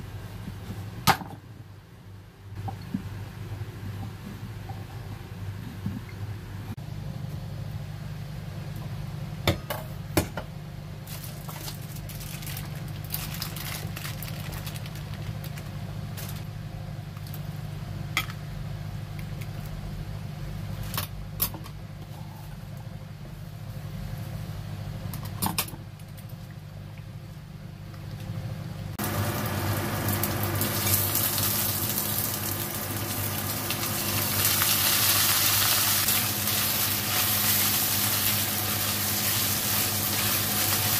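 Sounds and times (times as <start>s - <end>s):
meat sizzling in hot oil: 29.0s - 40.9s.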